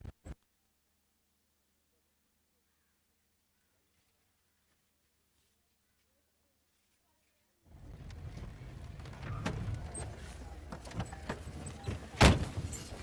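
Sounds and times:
car door shutting thud: 0:11.0 - 0:12.8.

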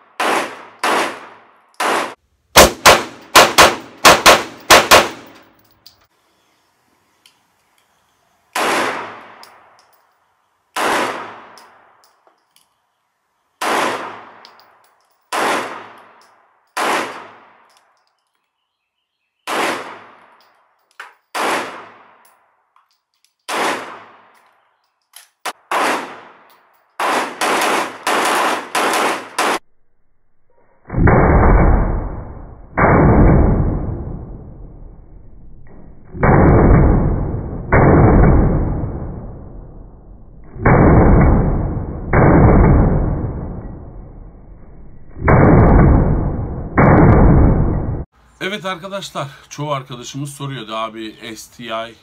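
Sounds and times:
pistol shots with ringing echo: 0:00.0 - 0:05.4, 0:08.5 - 0:10.0, 0:10.8 - 0:12.0, 0:13.6 - 0:14.7, 0:15.3 - 0:17.7, 0:19.4 - 0:20.6, 0:21.3 - 0:22.4, 0:23.5 - 0:24.6, 0:25.5 - 0:29.6.

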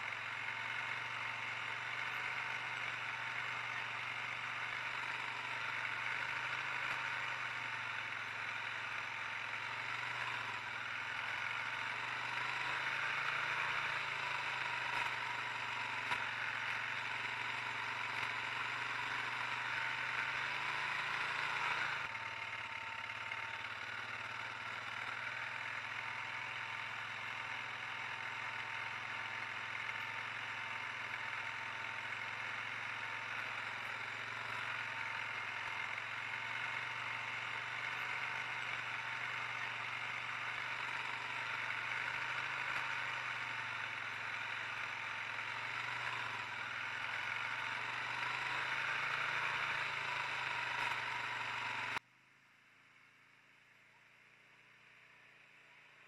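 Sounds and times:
atv engine running: 0:00.0 - 0:52.0.

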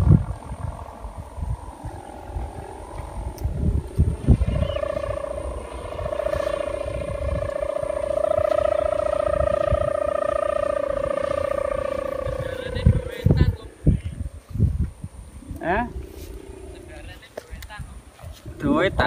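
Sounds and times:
kite hummer droning: 0:00.0 - 0:19.0
wind buffeting microphone: 0:00.0 - 0:19.0.

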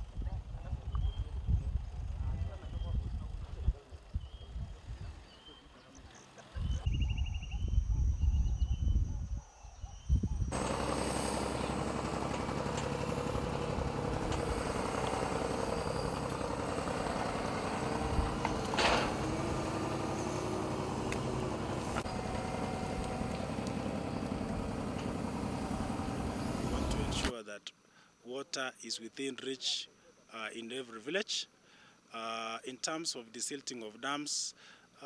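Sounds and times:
crane engine running: 0:10.5 - 0:27.3.

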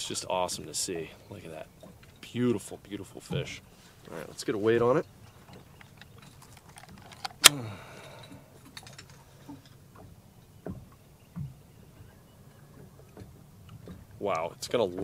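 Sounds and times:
metal gripper clicks and rattles: 0:05.8 - 0:07.5.

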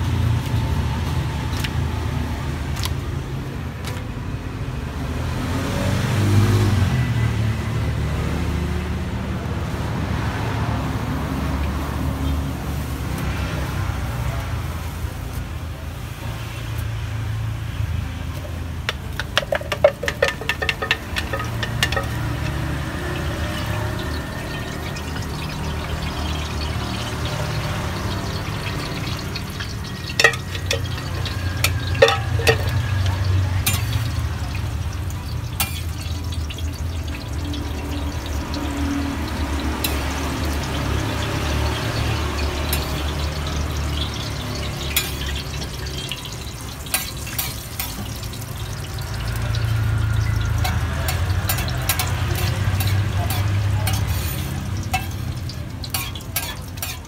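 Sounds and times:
dough sizzling on a griddle: 0:09.6 - 0:57.0
metal spatula clicking and scraping: 0:18.4 - 0:22.6, 0:28.7 - 0:34.2, 0:35.6 - 0:36.8, 0:44.9 - 0:46.1, 0:46.8 - 0:48.2, 0:50.3 - 0:57.0.

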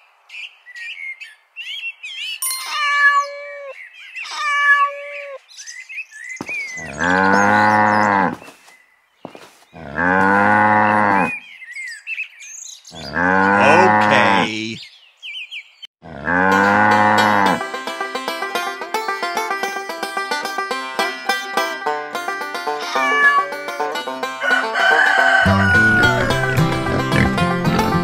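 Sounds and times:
short chirping calls: 0:00.4 - 0:09.4
cattle mooing: 0:06.8 - 0:08.4, 0:09.8 - 0:11.4, 0:13.0 - 0:14.8, 0:16.0 - 0:17.7, 0:25.4 - 0:27.4.

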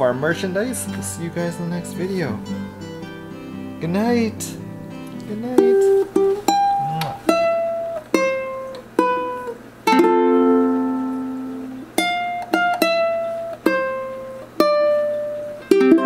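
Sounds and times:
ukulele plucked notes: 0:00.0 - 0:16.0
ukulele strummed chord: 0:03.8 - 0:16.0.

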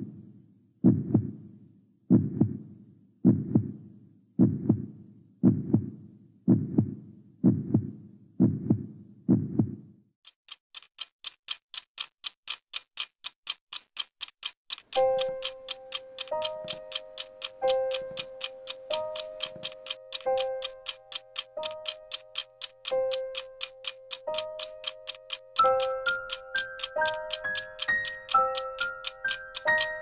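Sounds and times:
heartbeat double thump: 0:00.8 - 0:01.4, 0:02.1 - 0:02.6, 0:03.2 - 0:03.8, 0:04.4 - 0:09.8
clock ticking quickly: 0:10.2 - 0:30.0.

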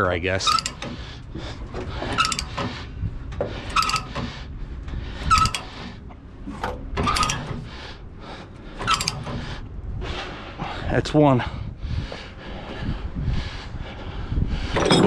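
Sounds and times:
metallic ratchet clicks: 0:00.4 - 0:01.0, 0:02.2 - 0:02.6, 0:03.7 - 0:04.2, 0:05.2 - 0:05.7, 0:07.0 - 0:07.5, 0:08.8 - 0:09.3
chain links clinking: 0:03.7 - 0:04.1, 0:14.8 - 0:15.0.

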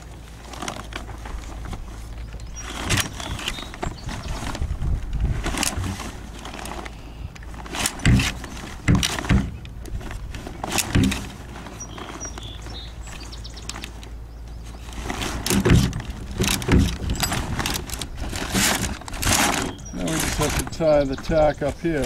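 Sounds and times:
thumps: 0:07.5 - 0:11.7, 0:15.0 - 0:21.4
sail slides clicking on metal track: 0:07.6 - 0:10.0, 0:10.6 - 0:11.4, 0:15.0 - 0:20.9.

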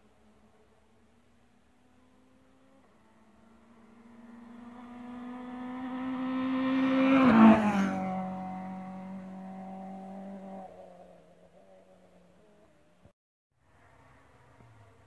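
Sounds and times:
rally car engine passing at speed: 0:01.6 - 0:13.0.

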